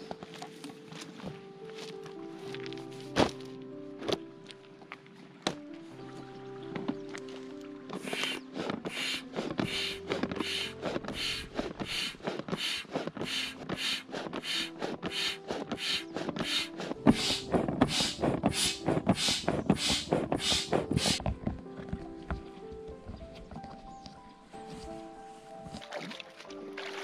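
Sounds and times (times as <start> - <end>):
foot pump air whoosh: 7.9 - 21.2.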